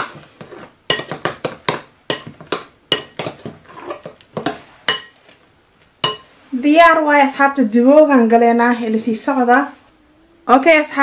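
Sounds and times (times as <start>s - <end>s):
metal spoon clinking against glass bowl: 6.0s - 6.3s.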